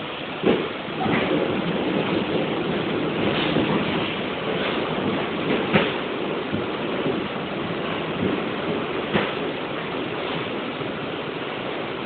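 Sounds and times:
subway train wheels roaring on rail: 0:00.0 - 0:12.0
train clanks: 0:00.0 - 0:12.0.

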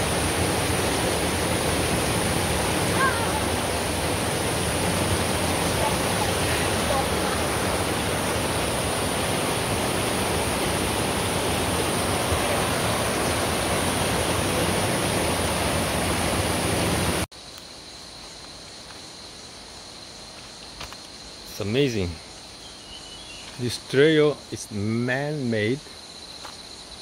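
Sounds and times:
stream rushing over rapids: 0:00.0 - 0:17.3.

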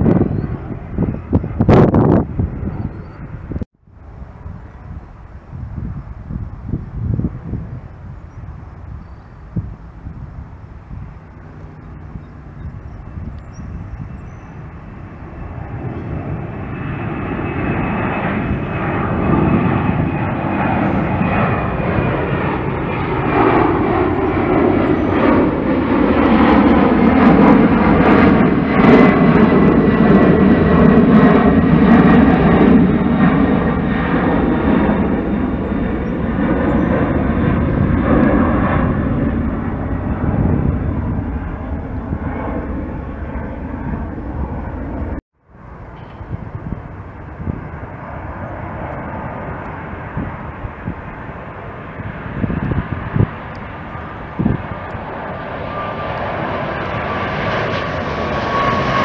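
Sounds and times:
jet engines passing overhead: 0:00.0 - 0:59.0
faint high whine: 0:40.9 - 0:49.9.

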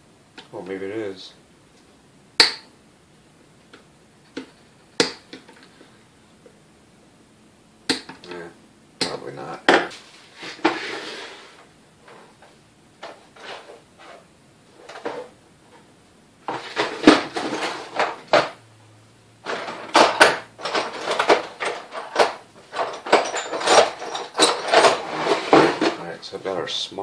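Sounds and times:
metal hand tools clinking: 0:20.2 - 0:25.2.

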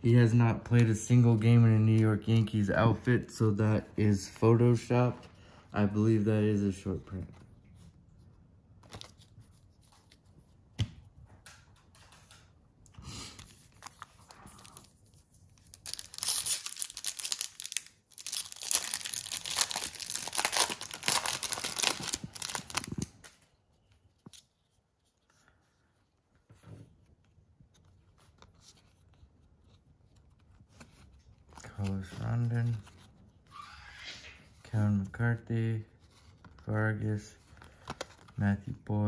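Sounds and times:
cards being handled: 0:06.1 - 0:33.5, 0:35.9 - 0:38.8
foil wrapper tearing and crinkling: 0:15.6 - 0:23.2.

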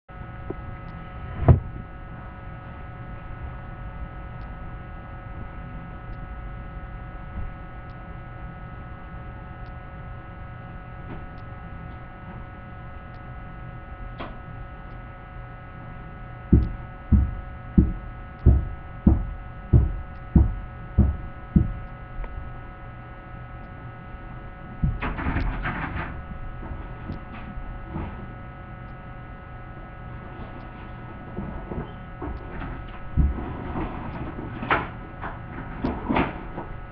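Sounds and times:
electrical hum: 0:00.1 - 0:36.9
dull thumps: 0:16.5 - 0:22.3.

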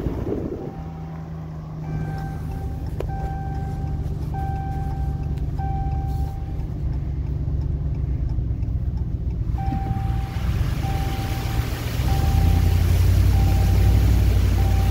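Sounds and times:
engine and tyres on wet road: 0:00.0 - 0:14.9
electronic chime: 0:00.6 - 0:03.7, 0:09.6 - 0:12.8.

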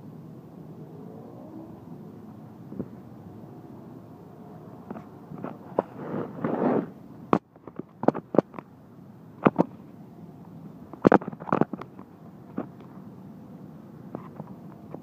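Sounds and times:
microphone rubbing: 0:04.9 - 0:07.0.

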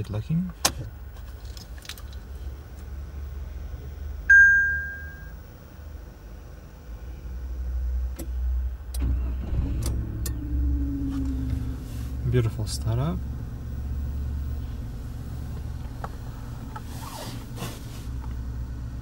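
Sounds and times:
car engine cranking and idling: 0:00.0 - 0:19.0
electronic dashboard chime: 0:04.3 - 0:05.5.

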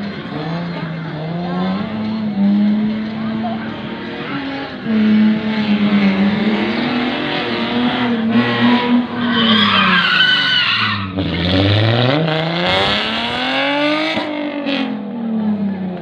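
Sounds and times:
car engine revving hard: 0:00.0 - 0:16.0
tyres squealing: 0:08.6 - 0:11.2.

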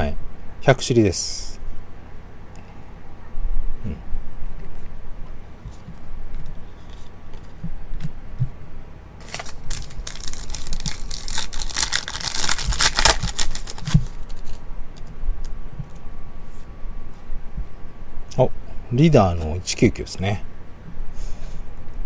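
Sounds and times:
foil wrapper tearing and crinkling: 0:09.2 - 0:14.6.

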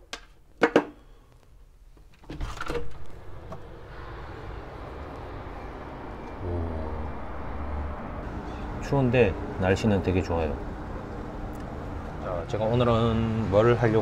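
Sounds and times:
street traffic hiss: 0:03.0 - 0:14.0.

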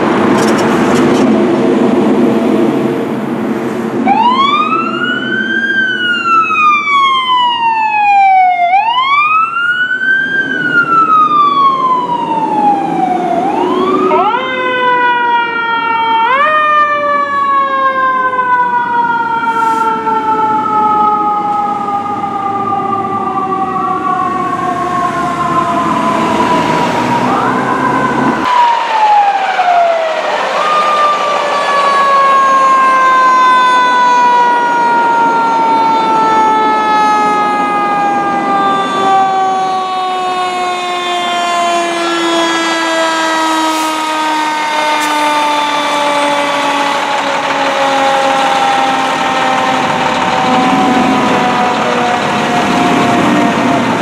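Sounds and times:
fire truck siren wailing: 0:00.0 - 0:54.0
higher siren tone: 0:04.0 - 0:54.0
diesel engine running: 0:44.0 - 0:54.0.

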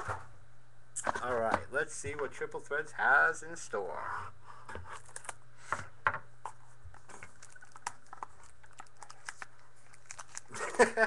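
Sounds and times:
cardboard box opening crinkles: 0:06.9 - 0:10.9.

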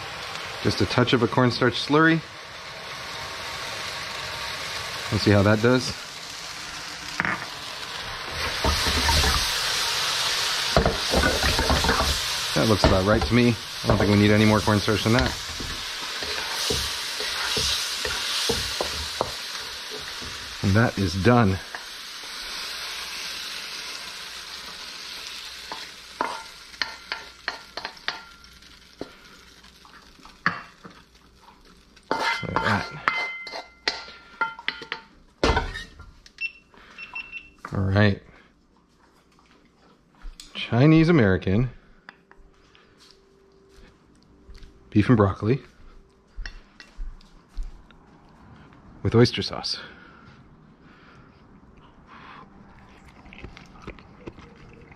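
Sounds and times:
food sizzling in a wok: 0:00.0 - 0:36.0
spatula scraping a wok: 0:08.3 - 0:09.6, 0:10.8 - 0:12.3, 0:13.1 - 0:20.5, 0:32.1 - 0:34.6.

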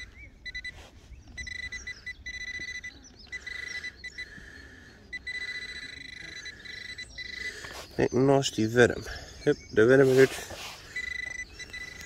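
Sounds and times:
metal detector high tone: 0:00.0 - 0:04.2, 0:05.1 - 0:07.5, 0:10.9 - 0:12.0
digging: 0:09.8 - 0:12.0.

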